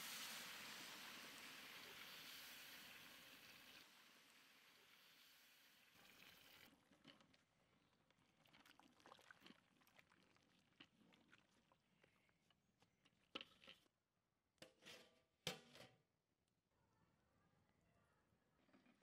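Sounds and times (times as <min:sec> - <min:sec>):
water pouring into pot: 0:00.0 - 0:12.4
wooden spatula stirring in a pot: 0:06.7 - 0:13.9.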